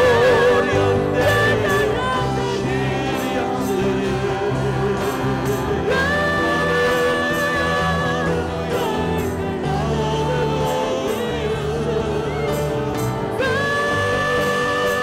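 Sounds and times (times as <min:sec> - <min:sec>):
instrumental backing music: 0:00.0 - 0:15.0
woman singing into microphone: 0:00.0 - 0:15.0.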